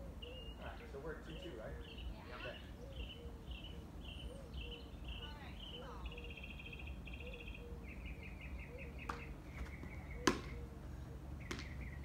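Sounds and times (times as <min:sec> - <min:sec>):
birds trilling: 0:00.0 - 0:12.0
tennis ball struck by racket: 0:09.0 - 0:10.6, 0:11.4 - 0:11.8.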